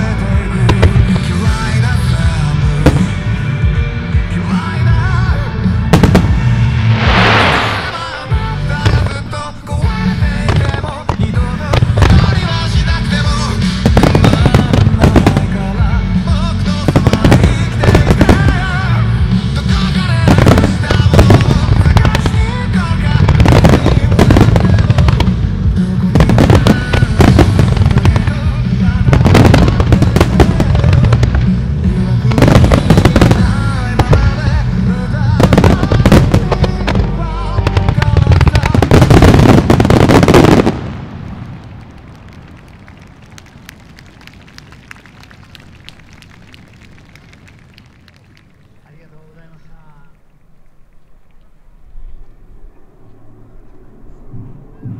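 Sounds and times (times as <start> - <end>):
fireworks bursts: 0.0 - 3.7, 4.6 - 49.9
music track: 0.0 - 40.9.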